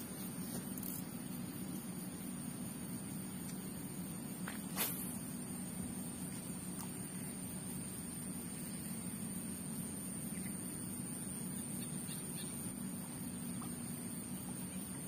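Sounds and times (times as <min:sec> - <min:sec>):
faint bird chirps: 0:10.2 - 0:15.0.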